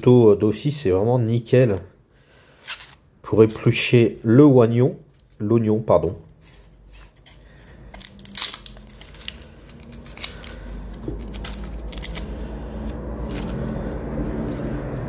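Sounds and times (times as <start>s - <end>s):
onion skin crackling and tearing: 7.2s - 15.0s
low rumble: 8.2s - 15.0s.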